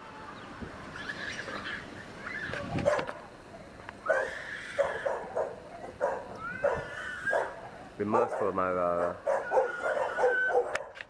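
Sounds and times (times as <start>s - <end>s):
dog barking: 2.8s - 3.2s, 4.1s - 11.0s.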